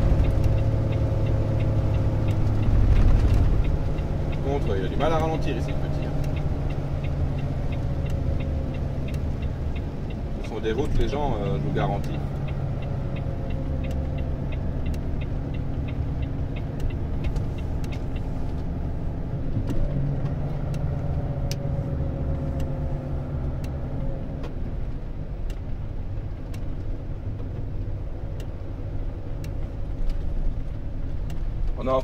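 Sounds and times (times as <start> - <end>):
diesel engine and road rumble: 0.0 - 32.0
quick light ticks: 0.1 - 18.8, 22.3 - 22.9
sharp clicks: 12.0 - 18.8, 19.6 - 24.6.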